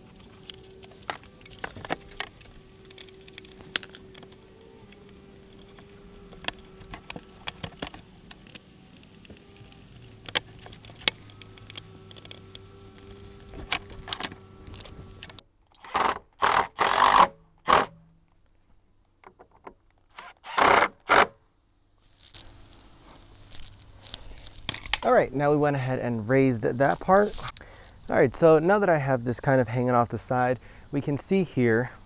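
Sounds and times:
hand tool and screws clicking: 0:00.0 - 0:18.0, 0:20.1 - 0:21.4
plastic piece cracking loose: 0:00.4 - 0:12.6, 0:24.0 - 0:25.1.

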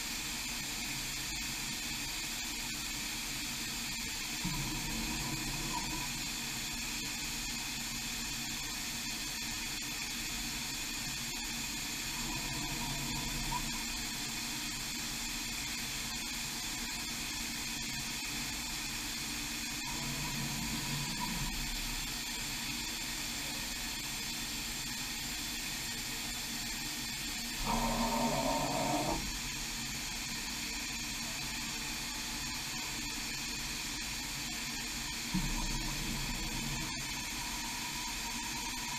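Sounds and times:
machine steady hiss: 0:00.0 - 0:38.9
axis drives humming: 0:19.7 - 0:23.0, 0:27.5 - 0:30.5, 0:35.2 - 0:38.9.

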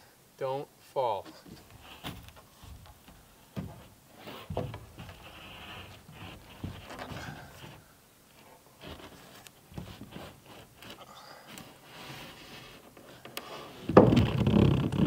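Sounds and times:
board scraping on wood: 0:01.3 - 0:15.0
wood knocking on wood: 0:01.5 - 0:07.8, 0:13.9 - 0:15.0.

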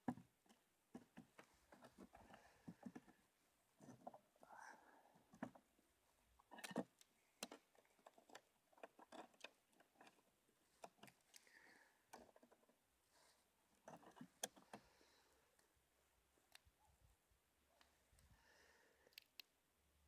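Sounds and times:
light handling clicks and taps: 0:06.5 - 0:11.5.

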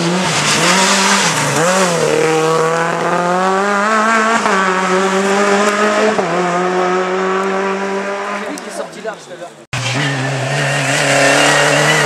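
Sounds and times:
rally car engine at high revs: 0:00.0 - 0:08.8, 0:09.8 - 0:12.0.

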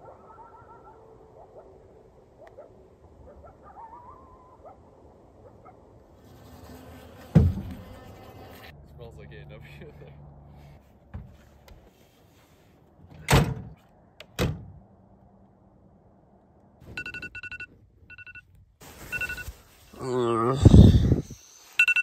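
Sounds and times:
truck canopy slamming: 0:13.2 - 0:13.8
phone alarm beeping: 0:16.9 - 0:18.5, 0:19.1 - 0:19.5, 0:21.8 - 0:22.0.

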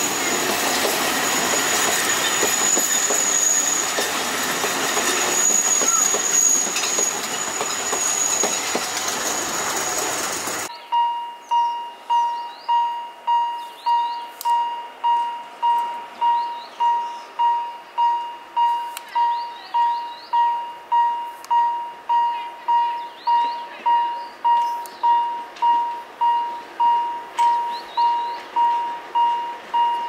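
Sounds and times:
level crossing warning bell: 0:00.0 - 0:04.0, 0:10.9 - 0:30.0
train wheel squeal: 0:00.0 - 0:10.7, 0:24.0 - 0:30.0
birds chirping: 0:10.6 - 0:14.7, 0:15.8 - 0:18.4, 0:19.0 - 0:20.6, 0:22.3 - 0:25.4, 0:27.4 - 0:29.0.

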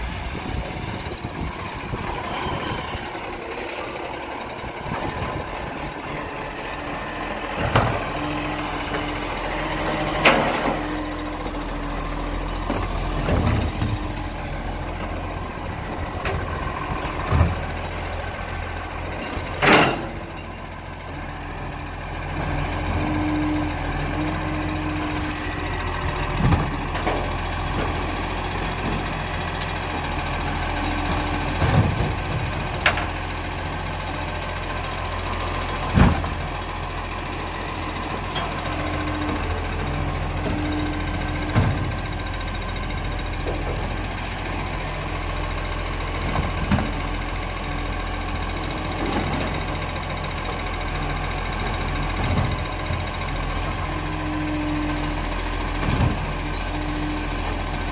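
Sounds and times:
garbage truck diesel engine: 0:00.0 - 0:57.9
sharp clunks and knocks: 0:35.9 - 0:36.4.

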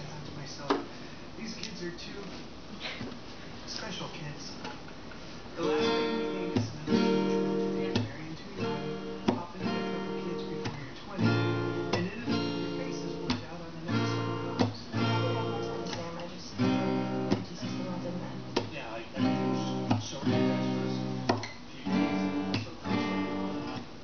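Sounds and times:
acoustic guitar strumming chords: 0:05.6 - 0:24.0.

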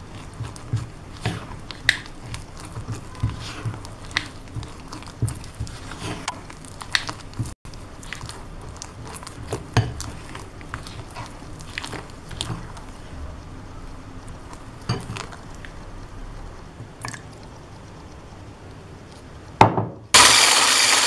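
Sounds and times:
spatula scraping batter in glass bowl: 0:00.0 - 0:07.1.

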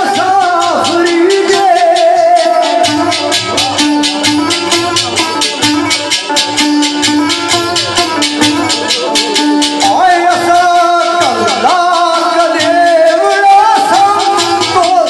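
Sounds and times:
man singing into a microphone: 0:00.0 - 0:04.1, 0:09.0 - 0:15.0
fast rattling percussion beat: 0:00.0 - 0:15.0
sitar: 0:00.0 - 0:15.0.

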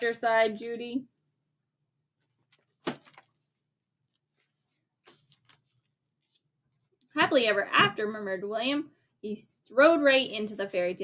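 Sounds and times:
page turning rustle: 0:02.4 - 0:06.5.

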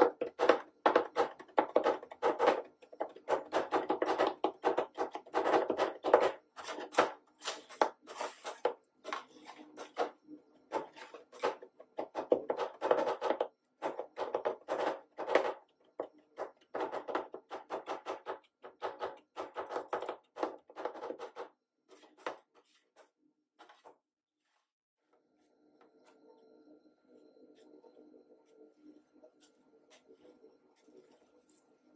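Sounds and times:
spatulas scraping: 0:00.0 - 0:15.7.

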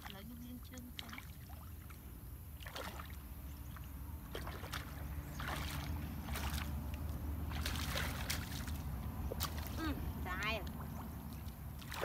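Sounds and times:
feet wading through water: 0:00.0 - 0:12.0
low steady rumble: 0:00.0 - 0:12.0.

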